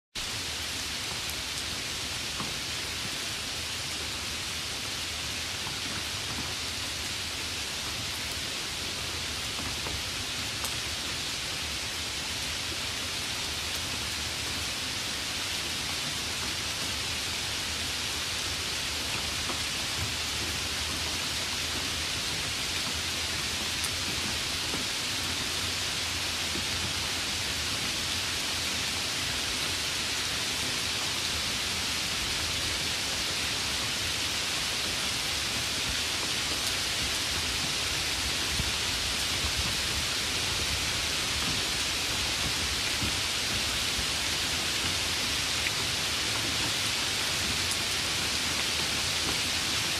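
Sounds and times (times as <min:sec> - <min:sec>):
steady rain hiss: 0:00.2 - 0:49.9
faint raindrop ticks: 0:09.4 - 0:10.9, 0:18.3 - 0:28.5, 0:41.0 - 0:49.8.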